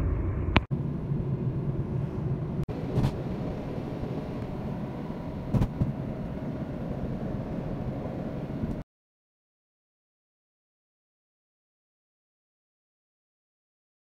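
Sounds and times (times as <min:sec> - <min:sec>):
road and engine rumble in car: 0:00.0 - 0:08.8.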